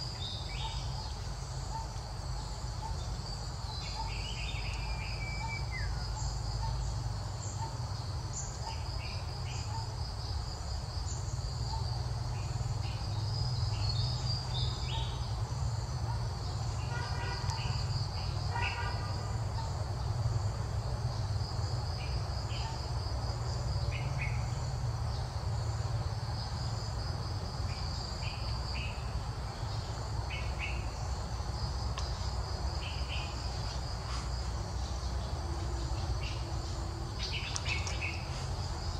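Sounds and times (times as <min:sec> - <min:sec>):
short insect chirps: 0:00.0 - 0:19.2, 0:27.7 - 0:38.9
insects trilling: 0:00.0 - 0:38.9.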